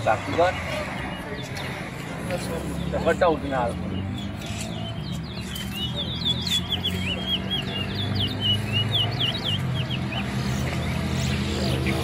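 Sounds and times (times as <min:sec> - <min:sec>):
finch singing whistled notes: 0:03.8 - 0:11.4.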